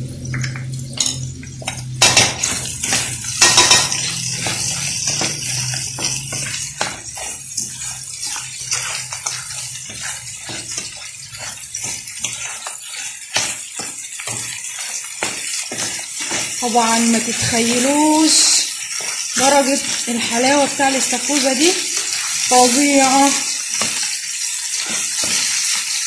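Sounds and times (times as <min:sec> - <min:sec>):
shells scraping against metal pan: 0:02.0 - 0:17.4.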